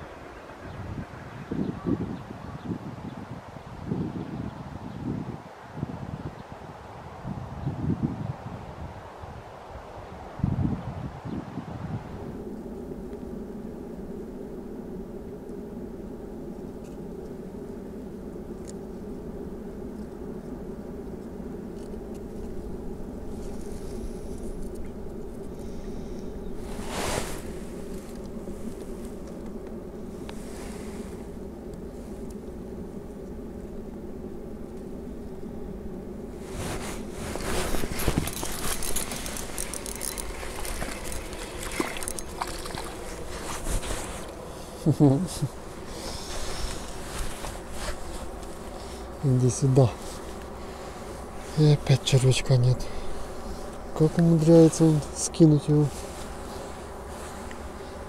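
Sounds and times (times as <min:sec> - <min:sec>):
wind buffeting microphone: 0:00.0 - 0:12.6, 0:36.2 - 0:50.0
fishing reel clicking: 0:38.3 - 0:42.4.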